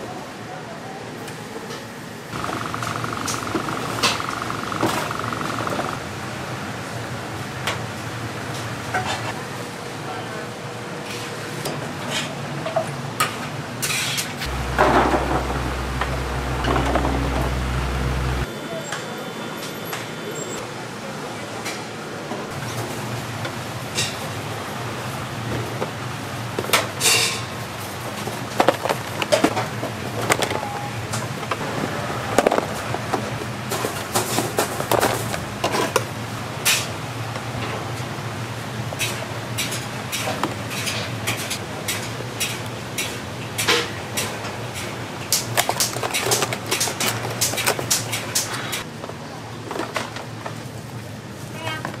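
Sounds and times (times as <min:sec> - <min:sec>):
low hum: 0:02.4 - 0:06.0, 0:14.4 - 0:18.5.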